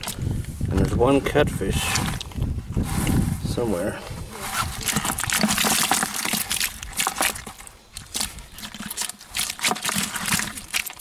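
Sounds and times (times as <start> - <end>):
wet fish slapping and flapping: 4.4 - 11.0.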